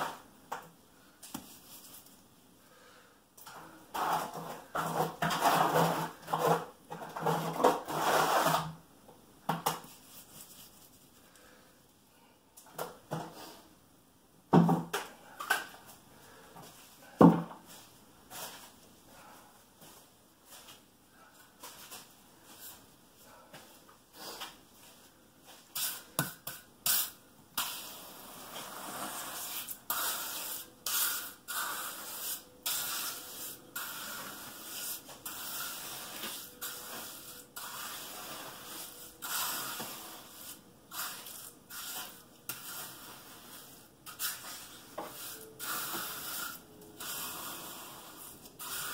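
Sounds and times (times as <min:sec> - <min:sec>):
trowel scraping wet concrete: 0:26.9 - 0:48.9.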